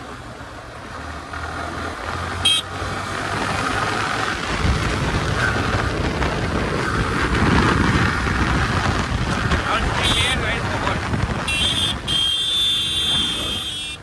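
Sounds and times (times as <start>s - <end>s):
motorcycle engine running: 0.3s - 14.0s
wind rushing over microphone: 2.9s - 14.0s.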